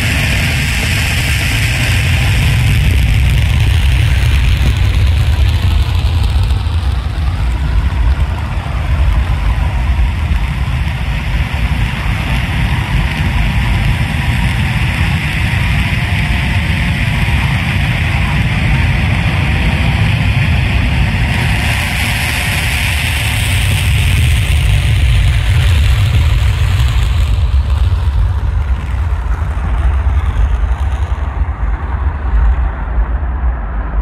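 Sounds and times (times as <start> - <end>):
jet engine roar: 0.0 - 34.0.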